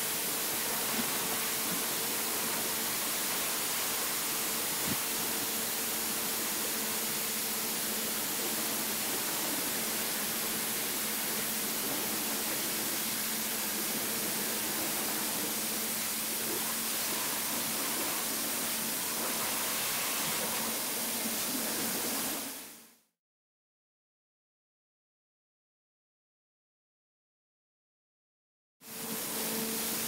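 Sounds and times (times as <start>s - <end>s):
high-pressure water jet hissing: 0.0s - 22.8s.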